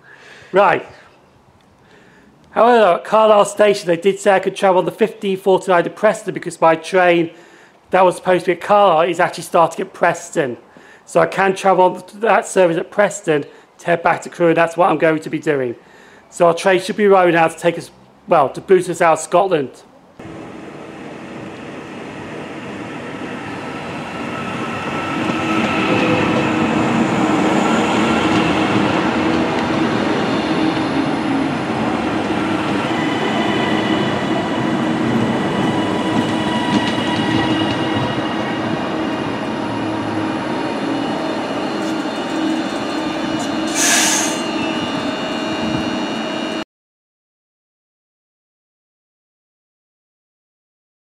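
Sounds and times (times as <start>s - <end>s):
electric train arriving: 20.2s - 46.6s
wheel and brake squealing: 23.2s - 46.6s
short hiss: 43.7s - 44.4s.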